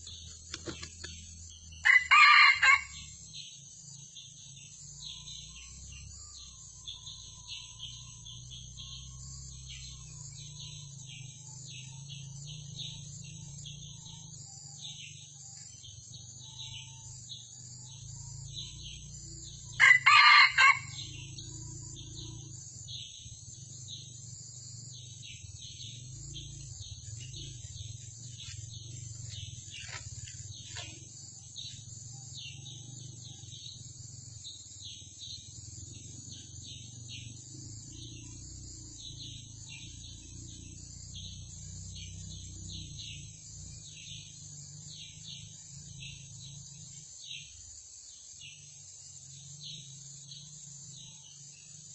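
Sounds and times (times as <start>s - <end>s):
forest insects chirring: 0.0s - 51.9s
rooster crowing: 1.8s - 3.1s, 19.7s - 21.2s.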